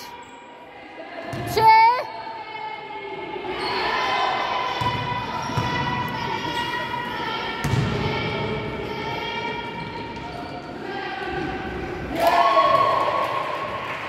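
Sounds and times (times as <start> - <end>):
voices echoing in a hall: 0.0 - 14.0
ball bouncing on hall floor: 4.8 - 6.5, 7.6 - 8.6.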